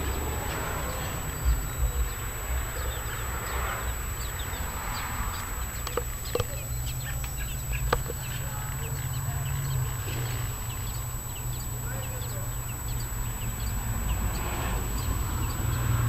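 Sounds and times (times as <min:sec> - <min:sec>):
low rumble: 0:00.0 - 0:11.8
birds chirping: 0:00.0 - 0:16.0
sharp clicks: 0:05.7 - 0:08.4.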